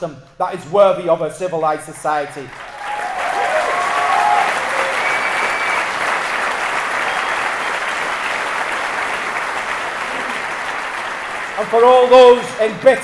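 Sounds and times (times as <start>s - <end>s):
audience applauding: 2.5s - 12.8s.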